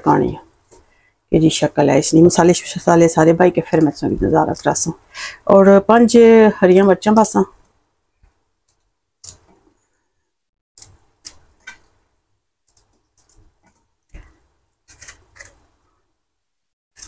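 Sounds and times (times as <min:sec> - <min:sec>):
knife cutting chillies: 0:03.5 - 0:04.9, 0:14.9 - 0:15.6.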